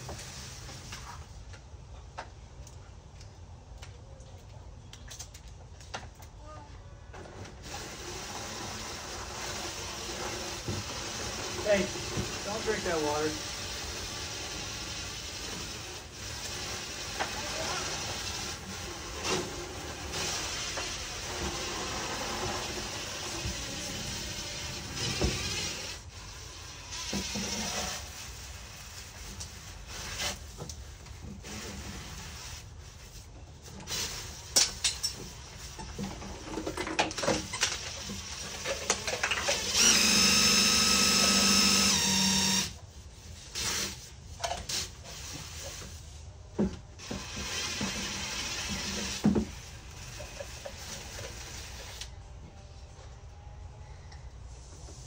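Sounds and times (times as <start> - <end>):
small electric motor whirring: 39.4 - 42.8.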